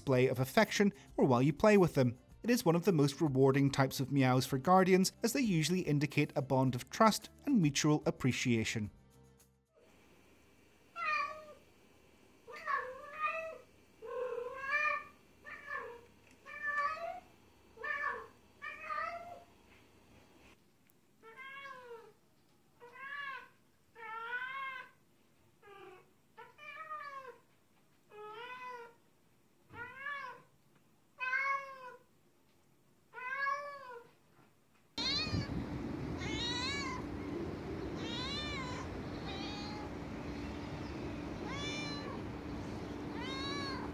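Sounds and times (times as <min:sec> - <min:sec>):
cats meowing: 0:11.0 - 0:11.6, 0:12.5 - 0:19.5, 0:21.2 - 0:22.2, 0:22.8 - 0:25.0, 0:25.6 - 0:27.4, 0:28.1 - 0:29.0, 0:29.7 - 0:30.5, 0:31.2 - 0:32.0, 0:33.2 - 0:34.1, 0:35.0 - 0:43.9
steady background noise: 0:35.0 - 0:43.9.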